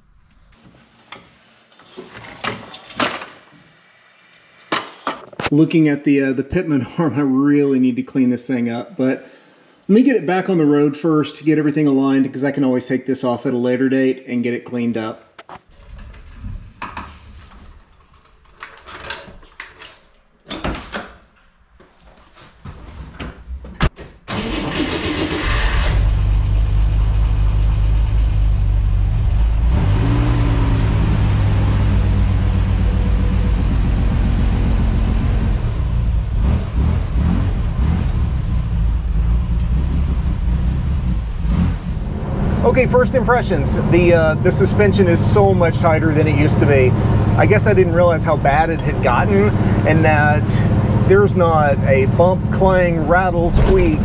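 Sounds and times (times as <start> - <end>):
car engine starting and running: 24.3 - 54.0.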